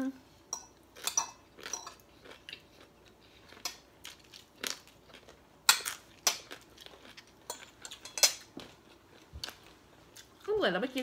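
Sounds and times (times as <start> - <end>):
cutlery clinking on plates: 0.5 - 2.0, 7.5 - 8.6
chewing and crunching food: 0.9 - 11.0.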